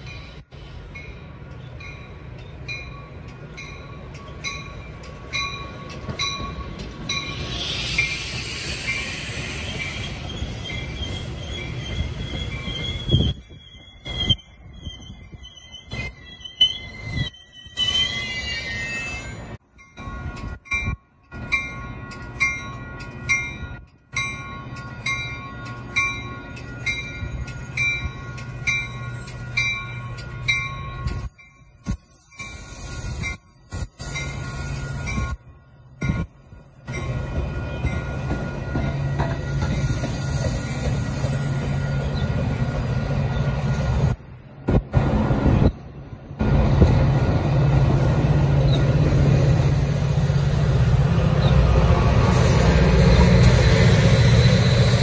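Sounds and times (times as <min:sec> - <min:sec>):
crossing bell ringing: 0:00.0 - 0:08.2, 0:17.8 - 0:43.4
train rumble: 0:00.0 - 0:55.0.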